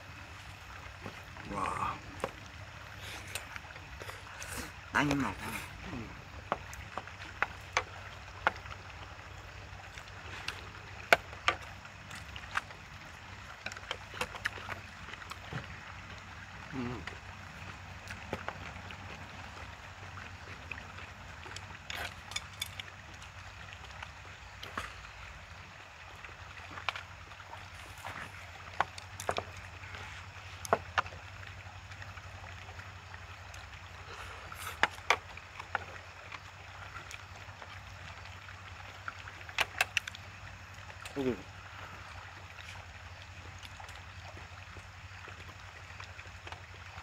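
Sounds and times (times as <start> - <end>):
chewing: 13.6 - 15.7, 21.4 - 23.3.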